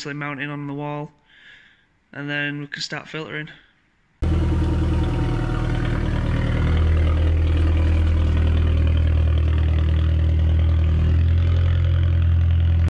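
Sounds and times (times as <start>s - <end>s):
car engine humming at low revs: 4.2s - 12.9s.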